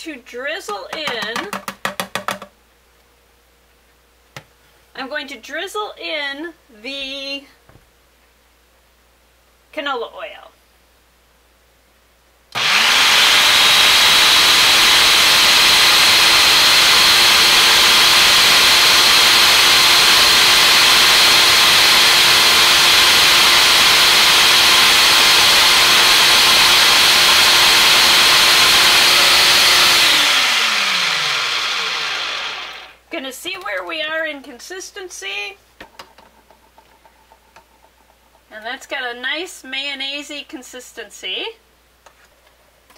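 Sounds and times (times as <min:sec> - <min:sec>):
food processor motor running: 0:12.6 - 0:33.0.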